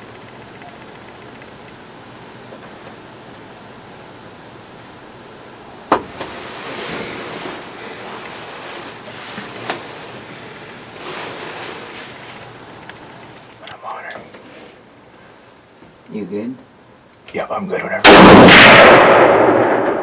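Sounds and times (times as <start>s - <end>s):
small clicks: 0.0s - 1.8s
rustling: 6.1s - 15.5s.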